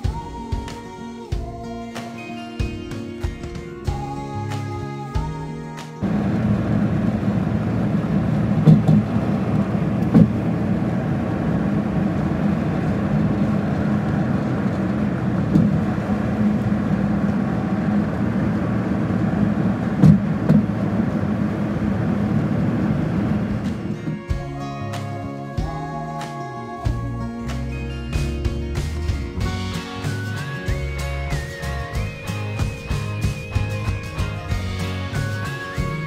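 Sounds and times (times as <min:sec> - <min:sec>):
car road rumble: 0:06.0 - 0:24.3.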